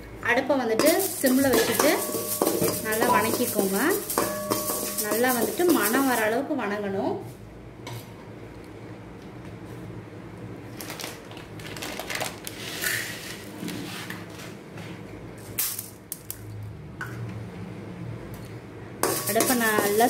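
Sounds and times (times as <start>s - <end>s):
grains crackling in a pan: 0.8s - 6.3s, 19.0s - 20.0s.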